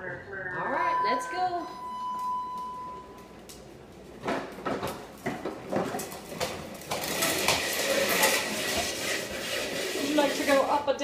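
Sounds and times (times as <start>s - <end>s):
plastic toy wheels rattling: 6.8s - 10.8s.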